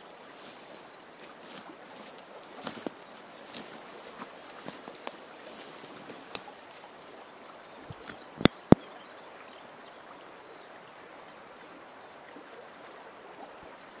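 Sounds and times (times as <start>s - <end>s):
faint bird chirps: 5.5s - 11.7s.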